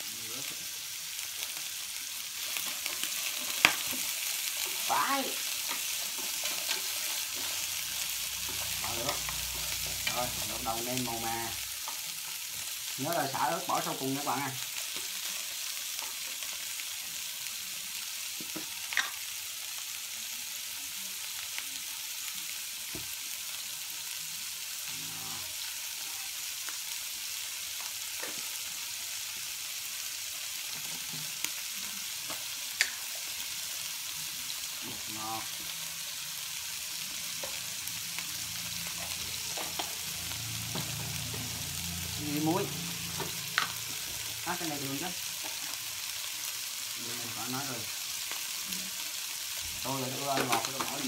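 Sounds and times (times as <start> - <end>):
meat sizzling in a frying pan: 0.0 - 51.0.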